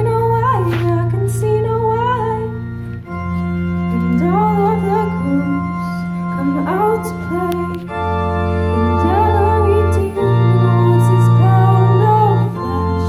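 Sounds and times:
keyboard sustained chords: 0.0 - 13.0
person singing: 3.9 - 8.0, 8.7 - 13.0.

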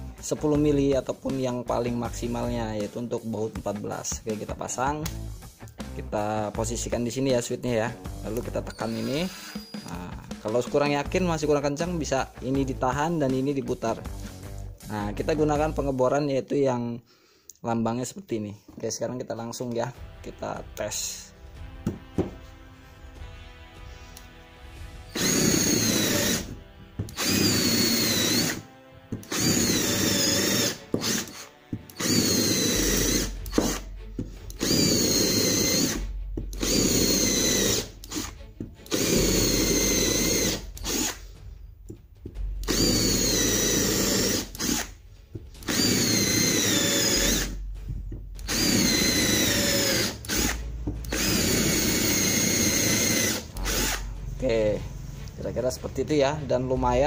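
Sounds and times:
cordless drill boring into wood: 8.6 - 10.0, 25.1 - 28.6, 29.2 - 33.9, 34.5 - 41.2, 42.6 - 44.9, 45.6 - 47.6, 48.4 - 54.0.

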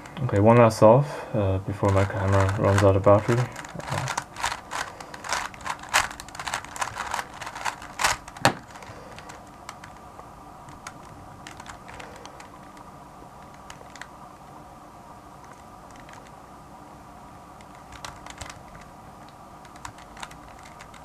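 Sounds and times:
puzzle cube clicking: 1.9 - 10.1, 10.7 - 14.1, 15.4 - 16.3, 17.6 - 21.0.

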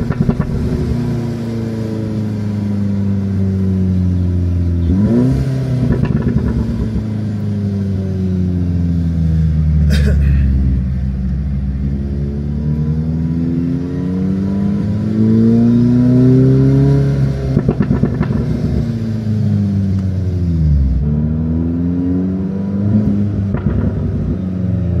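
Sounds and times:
exhaust crackling pops: 0.0 - 0.9, 5.9 - 6.9, 17.6 - 18.6, 23.4 - 24.4
car engine revving: 0.0 - 25.0.

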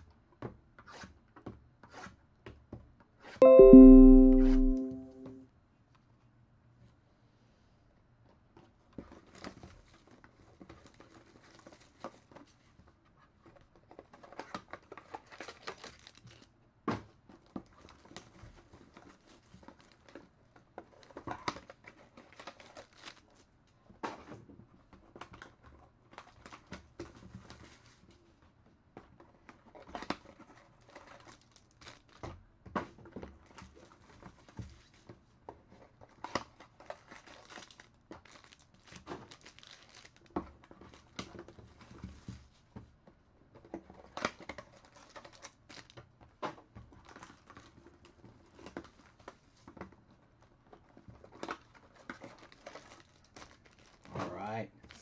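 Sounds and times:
plastic shrink wrap crinkling: 36.8 - 41.0, 44.6 - 46.0, 51.3 - 54.1.

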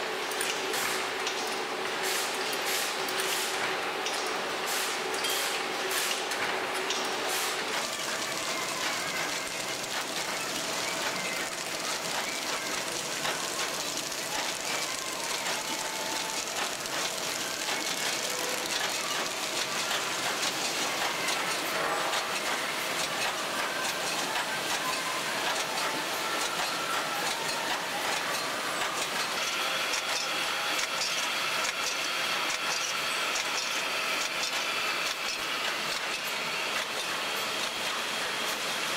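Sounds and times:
machinery clatter and hiss: 0.0 - 38.9
small mechanical ticks: 7.7 - 37.9.

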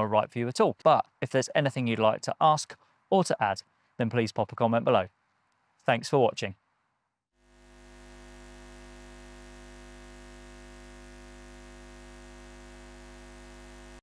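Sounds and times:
electronic drone: 7.4 - 14.0.

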